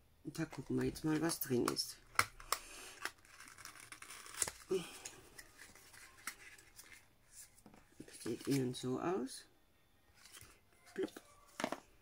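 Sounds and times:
thin card rustling and scraping: 0:00.5 - 0:08.8.

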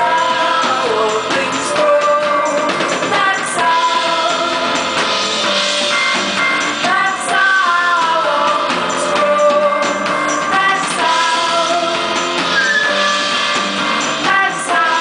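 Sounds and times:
woman singing into microphone: 0:00.0 - 0:04.8, 0:06.8 - 0:12.1, 0:14.2 - 0:15.0
drum kit: 0:00.0 - 0:15.0
live band playing: 0:00.0 - 0:15.0.

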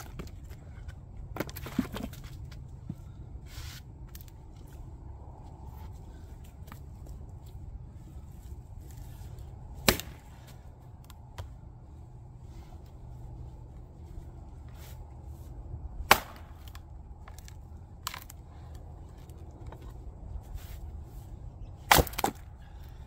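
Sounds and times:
axe chopping wood: 0:09.8 - 0:10.3, 0:16.0 - 0:18.3, 0:21.8 - 0:22.5.

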